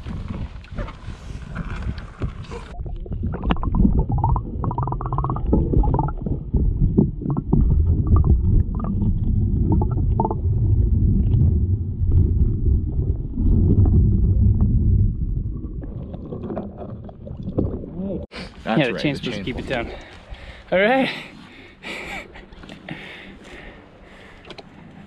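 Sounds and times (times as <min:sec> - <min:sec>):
muffled underwater rumble: 0:00.0 - 0:18.3.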